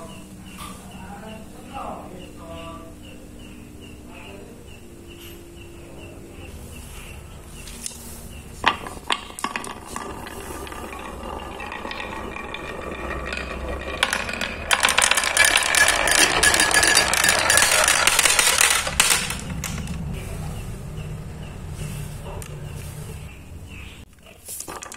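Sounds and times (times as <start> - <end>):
marbles clacking on wooden track: 8.6 - 20.1, 24.2 - 24.9
marbles rattling down wooden run: 8.6 - 20.1, 24.4 - 24.9.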